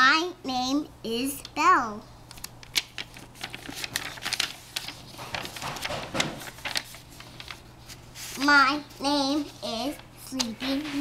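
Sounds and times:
page turning: 0:02.3 - 0:11.0
paper pages rustling: 0:02.3 - 0:11.0.

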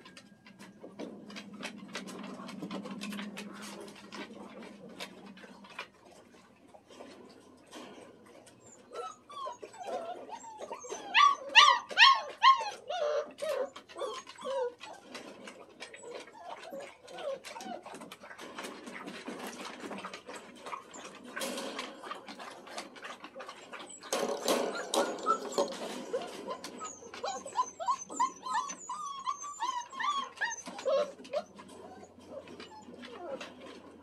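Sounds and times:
small clicks and rustling: 0:00.0 - 0:34.0
puppies whimpering and yelping: 0:07.8 - 0:34.0.

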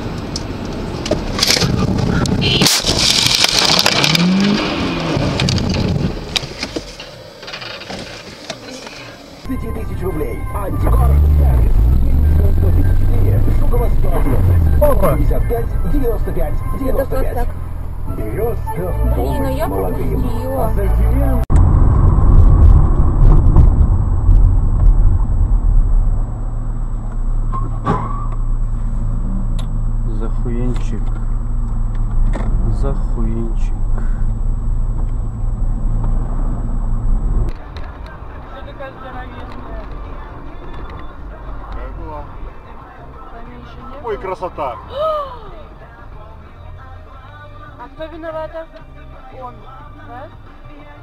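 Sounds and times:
car engine and road rumble: 0:00.0 - 0:51.0
metal crunching and scraping: 0:01.3 - 0:08.9.

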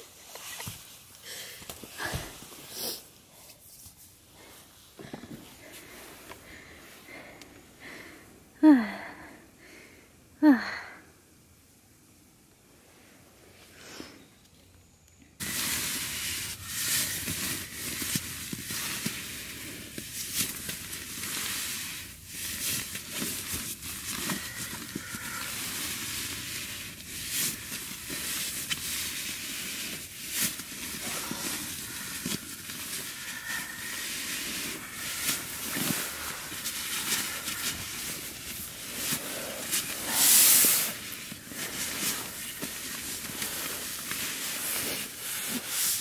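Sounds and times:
nylon sleeping bag rustling: 0:15.4 - 0:46.0.

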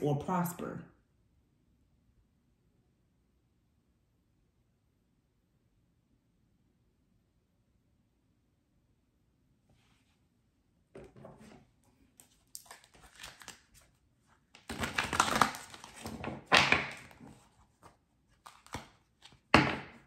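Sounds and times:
cards shuffling: 0:11.4 - 0:19.5.

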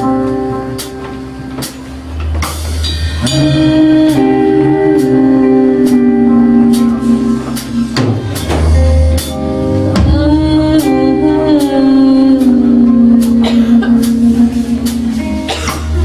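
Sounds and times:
rock band playing: 0:00.0 - 0:16.0
person singing: 0:03.2 - 0:16.0.

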